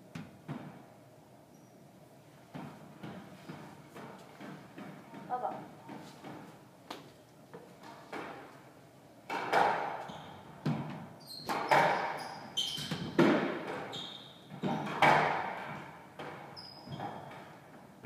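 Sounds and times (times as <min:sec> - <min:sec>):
squash ball hitting rackets and walls: 0:00.0 - 0:01.0, 0:02.4 - 0:18.0
shoes squeaking on wooden floor: 0:10.0 - 0:13.2, 0:13.8 - 0:15.0, 0:16.3 - 0:17.5.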